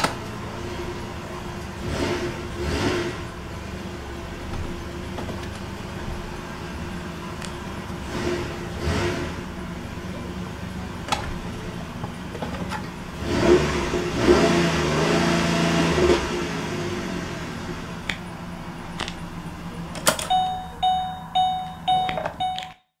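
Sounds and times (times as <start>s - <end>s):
car engine idling and revving: 0.0s - 22.7s
clicks: 20.0s - 22.9s
dashboard warning chime: 20.2s - 23.0s.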